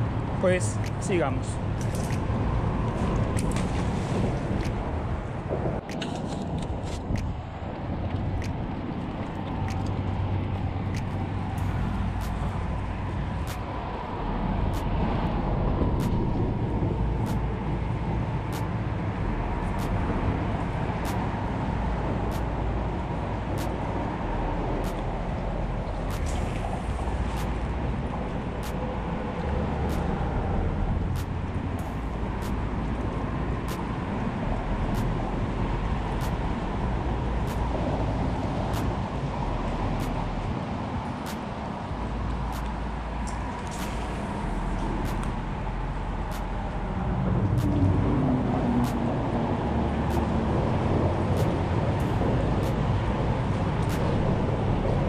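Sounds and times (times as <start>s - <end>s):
road traffic rumble: 0.0s - 55.0s
light ticks: 8.0s - 13.7s, 24.8s - 25.2s, 25.8s - 27.7s, 31.1s - 33.9s, 34.8s - 35.3s, 37.4s - 37.8s, 38.6s - 39.0s, 39.9s - 40.4s, 41.2s - 41.5s, 42.3s - 45.4s, 47.5s - 47.9s, 48.8s - 49.1s, 50.0s - 50.4s, 51.3s - 54.3s
faint high ticks: 24.8s - 25.2s, 25.8s - 27.7s, 34.8s - 35.3s, 37.4s - 37.7s, 38.6s - 39.0s, 39.9s - 40.3s, 42.3s - 45.4s, 47.5s - 47.9s, 50.0s - 50.4s, 53.8s - 54.2s.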